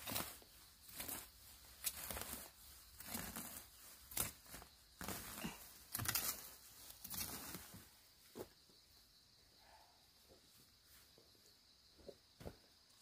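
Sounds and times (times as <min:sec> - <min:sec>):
rustling and tearing of weeds: 0:00.0 - 0:07.8
stems snapping: 0:03.0 - 0:07.5.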